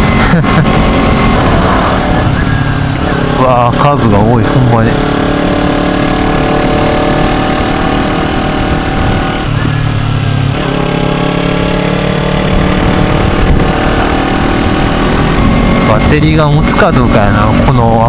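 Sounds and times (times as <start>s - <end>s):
motorcycle engine running: 0.0s - 18.0s
wind noise on microphone: 5.2s - 10.0s, 12.4s - 16.7s.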